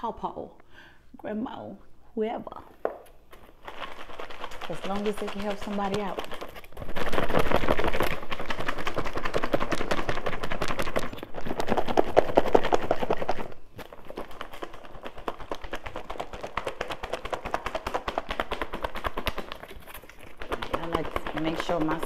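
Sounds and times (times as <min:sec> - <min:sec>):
salad rattling in plastic container: 0:03.4 - 0:22.0.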